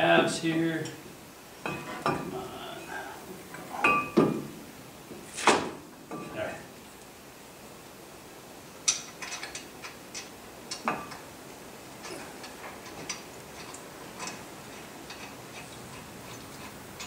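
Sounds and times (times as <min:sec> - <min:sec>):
metal clicks and clinks: 0:12.0 - 0:17.0.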